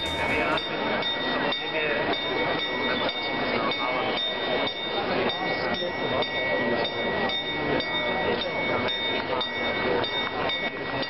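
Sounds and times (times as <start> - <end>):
small bell struck: 0.0 - 1.2
crowd chatter: 0.0 - 11.0.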